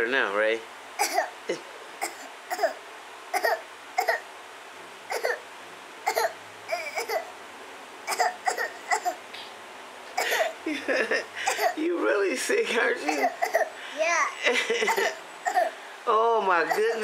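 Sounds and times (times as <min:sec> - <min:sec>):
child coughing: 0:01.0 - 0:01.4, 0:02.0 - 0:04.2, 0:05.1 - 0:05.4, 0:06.0 - 0:07.3, 0:08.1 - 0:09.2, 0:10.2 - 0:10.6, 0:11.4 - 0:11.8, 0:12.9 - 0:15.8, 0:16.6 - 0:17.0.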